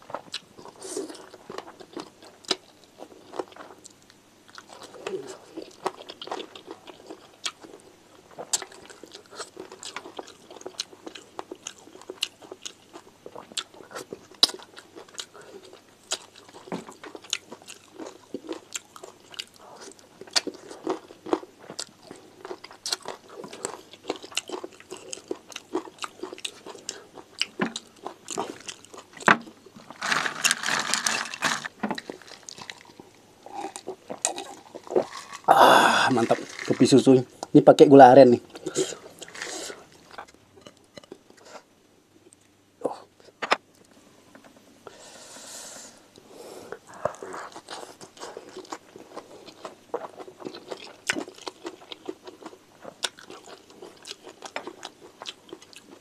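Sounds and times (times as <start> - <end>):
close chewing with mouth clicks: 0.1 - 35.5, 46.9 - 56.0.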